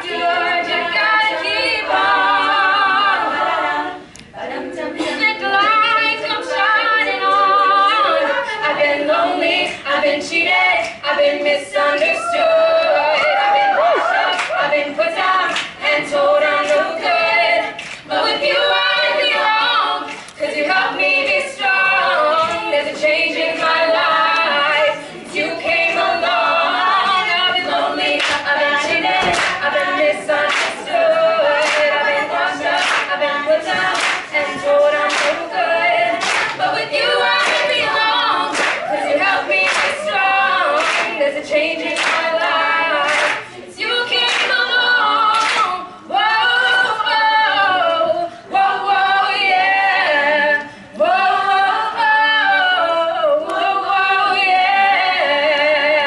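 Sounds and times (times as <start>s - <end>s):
women singing a cappella: 0.0s - 56.0s
hands clapping a beat: 14.3s - 14.6s, 15.5s - 15.8s, 17.8s - 18.1s, 20.0s - 20.5s, 27.1s - 30.9s, 31.5s - 45.8s.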